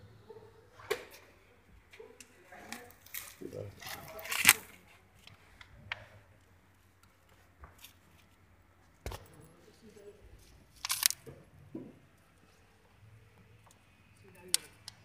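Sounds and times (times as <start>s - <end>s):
bubble wrap crinkling: 2.8s - 4.8s.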